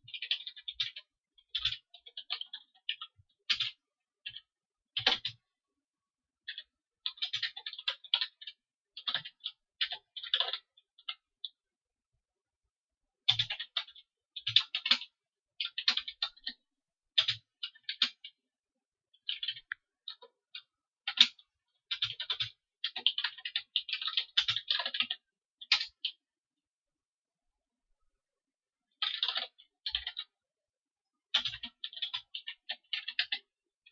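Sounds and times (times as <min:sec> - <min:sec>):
computer keyboard typing: 0:00.0 - 0:05.4, 0:06.4 - 0:11.6, 0:13.2 - 0:18.5, 0:19.2 - 0:26.3, 0:28.9 - 0:30.4, 0:31.3 - 0:33.9.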